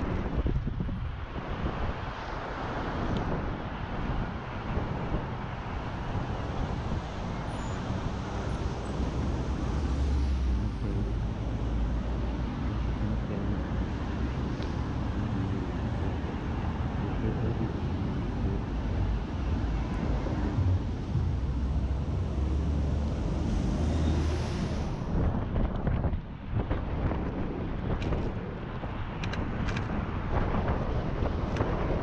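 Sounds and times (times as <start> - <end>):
road traffic rumble: 0.0 - 32.0
loud low engine note: 17.0 - 24.9.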